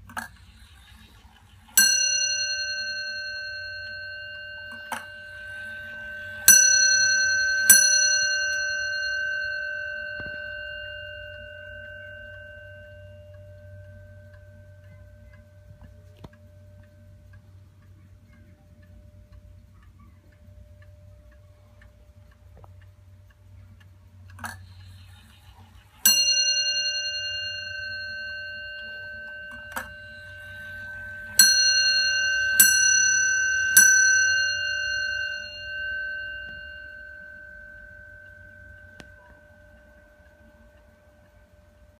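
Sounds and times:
wall clock bell striking: 0.6 - 16.8, 26.0 - 41.8.

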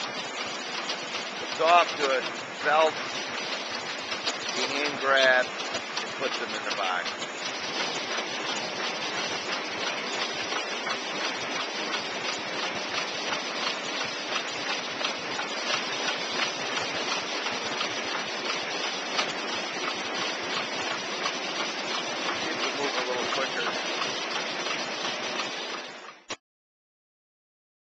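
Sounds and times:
conveyor clicking and rattling: 0.0 - 26.3.

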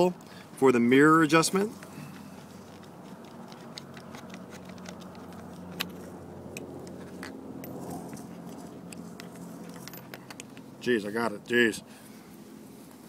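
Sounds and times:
steady low hum: 0.0 - 13.0
small metallic clicks and scrapes: 1.6 - 10.8.

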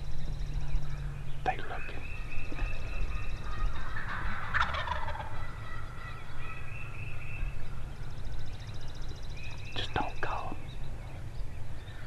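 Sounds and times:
turkey gobbling: 2.5 - 6.7.

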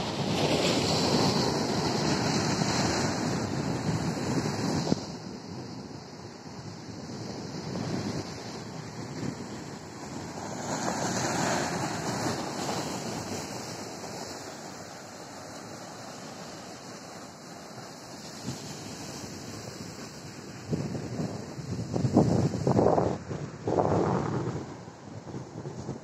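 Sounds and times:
sea surf breaking on rocks: 0.0 - 5.4, 6.6 - 26.0
wave crashing: 10.0 - 26.0.

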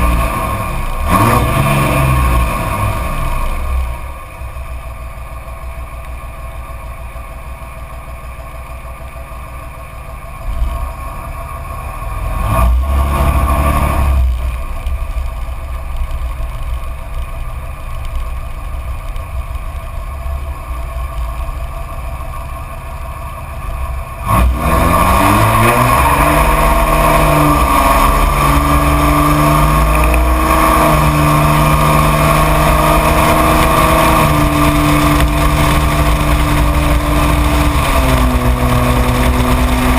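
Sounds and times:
truck accelerating through gears: 0.0 - 4.1, 10.4 - 14.6, 23.4 - 39.9
diesel truck exhaust rumble: 0.0 - 39.9.

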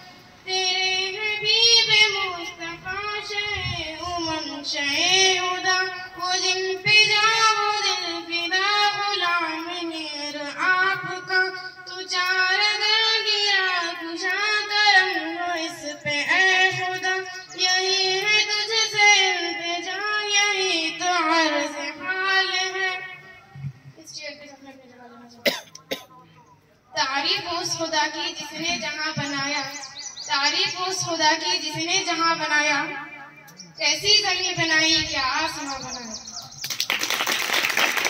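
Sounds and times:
girl singing unaccompanied: 0.4 - 23.2, 27.0 - 32.9.

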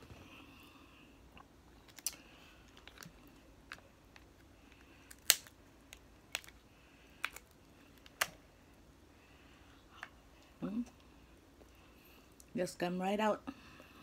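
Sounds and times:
crab shells cracking: 1.8 - 8.4.

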